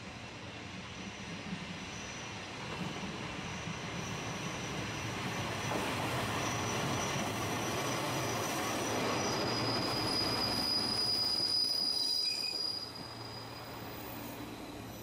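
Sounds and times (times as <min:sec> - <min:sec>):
diesel railcar passing: 0:00.0 - 0:15.0
high-pitched wheel squeal: 0:06.4 - 0:14.4.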